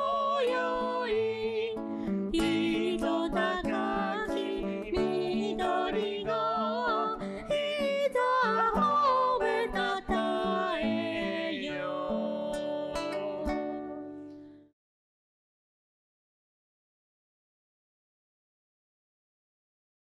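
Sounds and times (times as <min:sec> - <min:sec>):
acoustic guitar: 0:00.0 - 0:14.7
person singing: 0:00.0 - 0:14.7.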